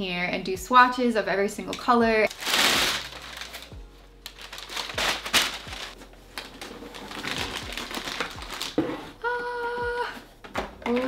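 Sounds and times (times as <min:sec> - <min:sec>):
packing paper crinkling: 0:02.3 - 0:09.2.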